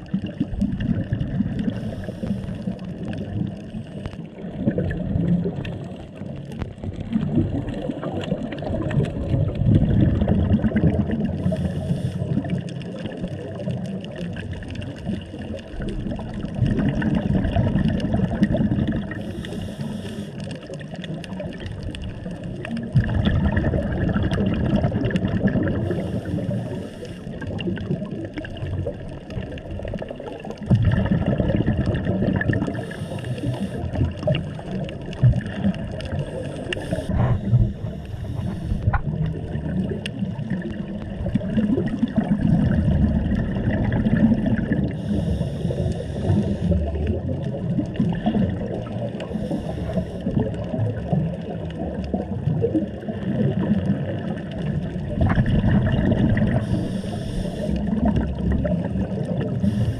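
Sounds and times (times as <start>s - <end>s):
exhaled air bubbling underwater: 0.0s - 59.9s
regulator inhalation hiss: 1.7s - 2.7s, 11.4s - 12.3s, 19.2s - 20.4s, 25.8s - 27.3s, 32.8s - 34.0s, 36.2s - 39.0s, 45.0s - 46.8s, 49.3s - 50.3s, 56.6s - 57.8s, 59.6s - 59.9s.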